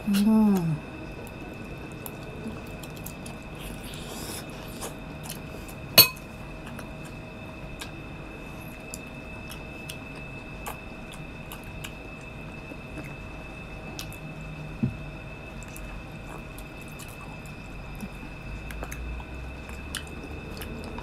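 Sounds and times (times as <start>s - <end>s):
faint steady high tone: 5.9s - 6.4s
person chewing grapes: 8.8s - 13.3s, 15.6s - 21.0s.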